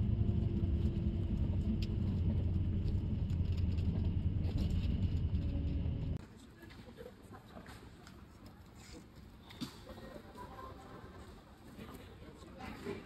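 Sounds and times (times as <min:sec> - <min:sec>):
bus engine and road rumble: 0:00.0 - 0:09.2
faint hall ambience: 0:06.2 - 0:13.0.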